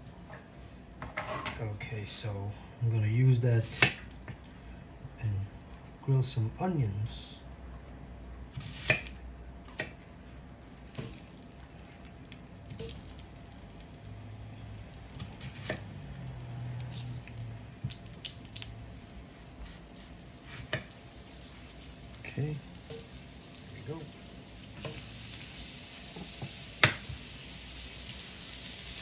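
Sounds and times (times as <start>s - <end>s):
fat sizzling in pan: 10.8s - 29.0s
onion knocking on grill pan: 26.1s - 27.3s.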